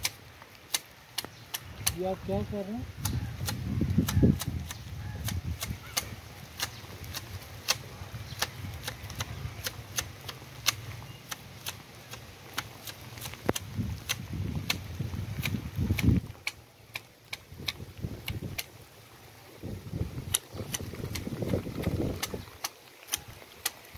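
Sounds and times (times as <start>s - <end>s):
hedge shears snipping: 0.0s - 14.8s.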